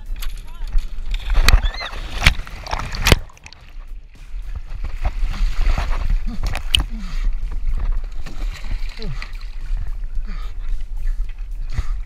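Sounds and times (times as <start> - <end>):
water pouring and sloshing: 0.8 - 3.9, 7.5 - 10.1.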